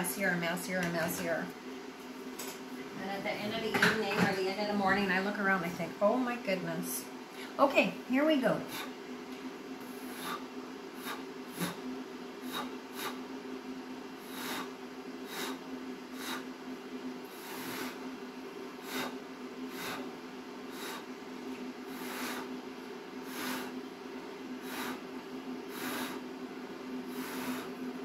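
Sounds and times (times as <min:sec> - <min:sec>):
steady low hum: 0:00.0 - 0:28.0
person blowing puffs of breath: 0:09.9 - 0:11.8, 0:12.4 - 0:13.3, 0:14.2 - 0:15.6, 0:16.2 - 0:16.5, 0:17.3 - 0:18.1, 0:18.8 - 0:20.1, 0:20.7 - 0:21.1, 0:21.9 - 0:22.6, 0:23.2 - 0:23.8, 0:24.6 - 0:25.0, 0:25.7 - 0:26.2, 0:27.1 - 0:27.8.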